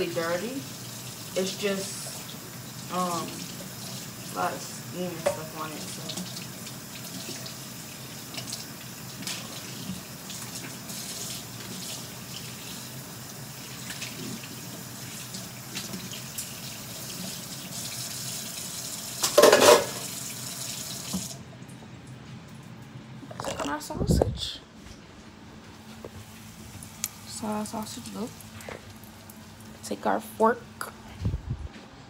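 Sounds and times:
faucet running into sink: 0.0 - 21.4
dishware clinking: 19.2 - 20.0.

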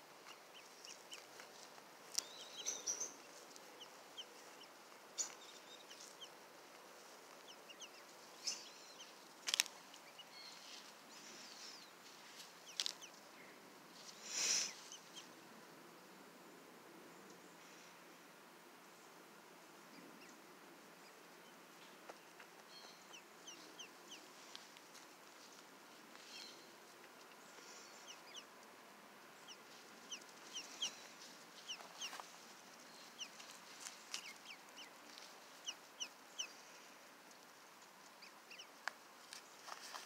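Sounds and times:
ducklings peeping: 0.0 - 6.4, 7.0 - 13.2, 14.7 - 15.4, 22.4 - 24.4, 27.5 - 28.6, 29.3 - 36.7, 38.0 - 38.9.

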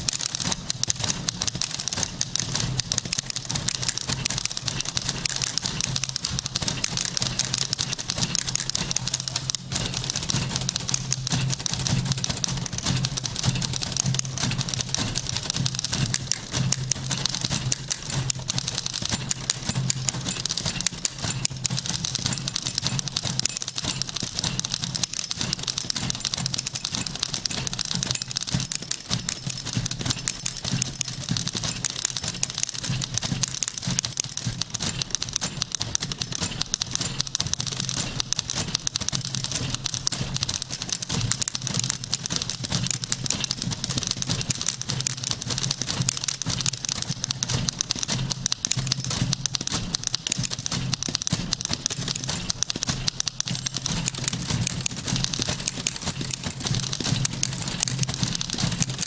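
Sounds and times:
typewriter keys clattering: 0.0 - 59.0.

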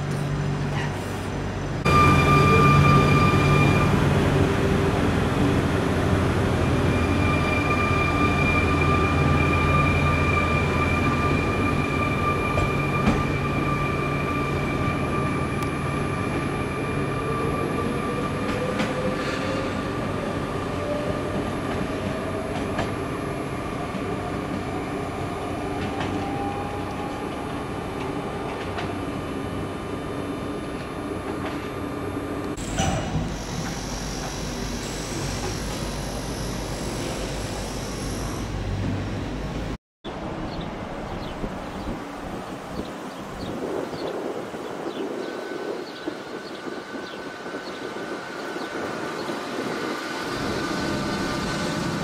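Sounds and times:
electric train hum and whine: 0.0 - 52.0
train motor whine rising in pitch: 32.6 - 38.9.

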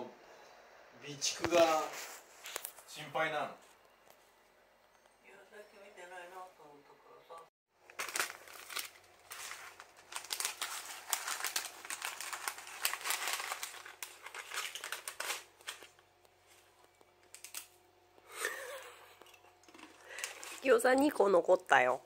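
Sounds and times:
plastic wrapper crinkling: 7.8 - 17.8, 19.6 - 21.2.

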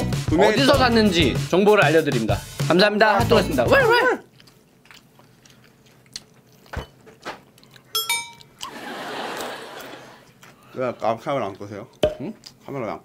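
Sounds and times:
person chewing crunchy snack: 4.2 - 8.7
bright ringing sound: 8.0 - 8.5.

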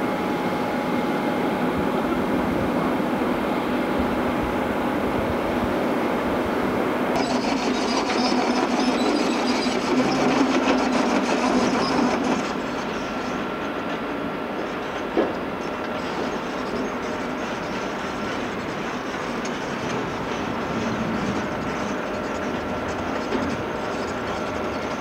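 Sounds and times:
heavy diesel machinery running: 0.0 - 25.0.

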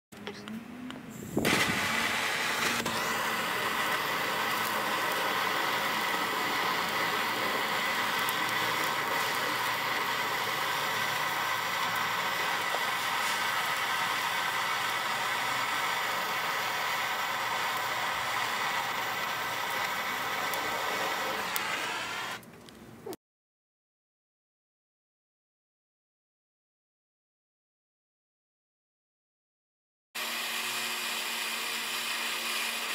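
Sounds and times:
blowtorch flame hissing: 1.1 - 22.4.

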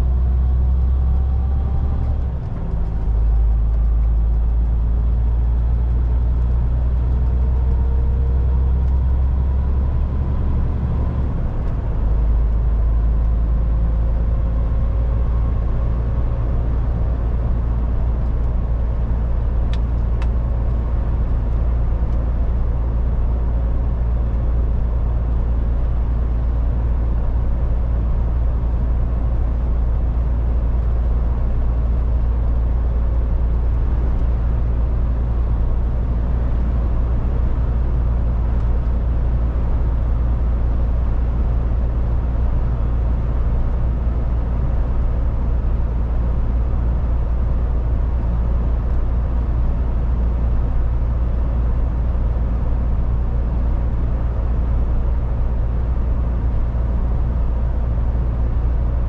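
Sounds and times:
truck diesel engine running: 0.0 - 19.6
road and tyre noise: 0.0 - 59.0.

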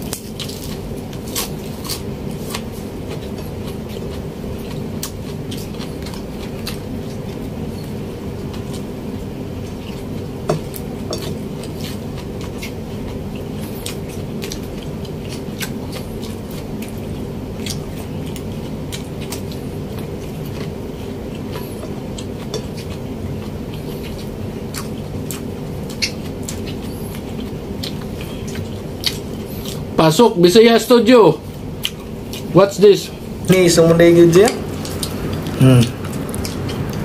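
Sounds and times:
man chewing with mouth open: 0.0 - 30.0, 31.4 - 37.0
steady low hum: 0.0 - 37.0
wet mouth clicks and smacks: 34.7 - 37.0.

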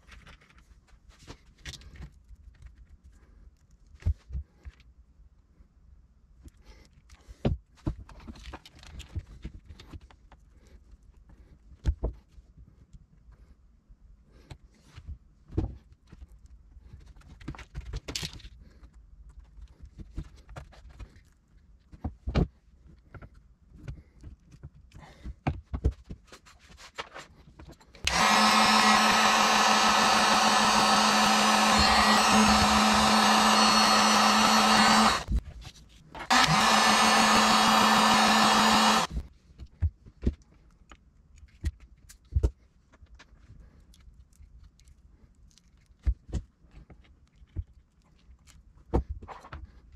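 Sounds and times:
heat gun blowing hum: 28.1 - 35.4, 36.3 - 39.2.

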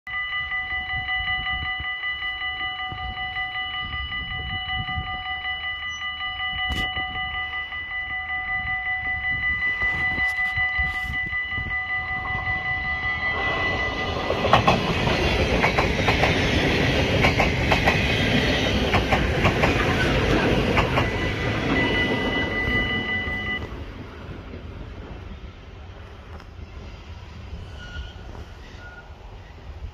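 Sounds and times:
crossing warning bell ringing: 0.1 - 23.9
train passing at speed: 0.1 - 29.9
wheels clattering over rail joints: 14.2 - 22.4.

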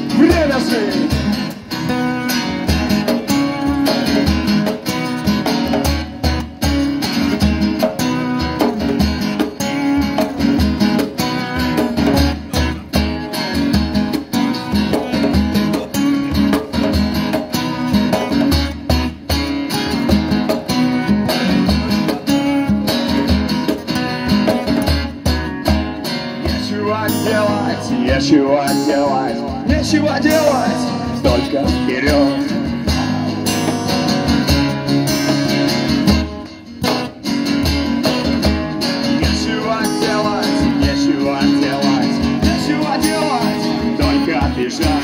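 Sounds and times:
acoustic guitars strumming: 0.0 - 45.0
djembe beating: 2.6 - 26.8.

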